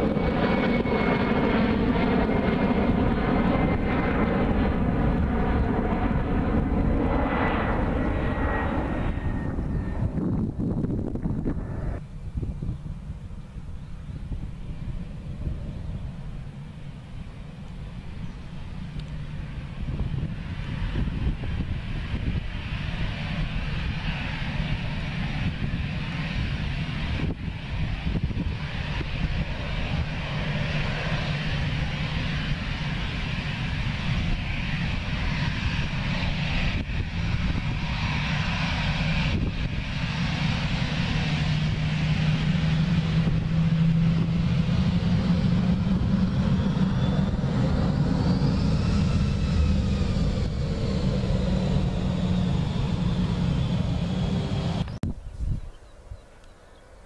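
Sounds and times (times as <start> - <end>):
jet engines roaring: 0.0 - 55.1
falling jet whines: 19.6 - 55.0.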